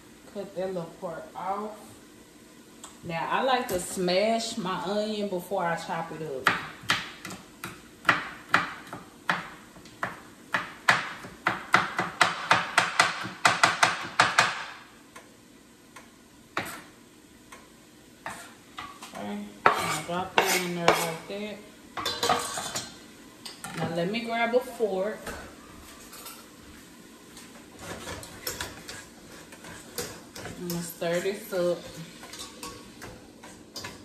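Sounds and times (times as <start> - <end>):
knife chopping on wooden board: 6.4 - 14.8
onion scraped into steel pot: 19.6 - 21.2, 22.0 - 22.9, 27.7 - 32.7.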